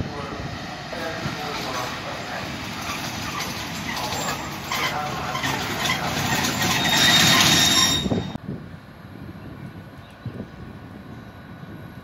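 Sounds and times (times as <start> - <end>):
train wheels clattering on rails: 0.9 - 8.4
wheel squeal: 2.8 - 8.4.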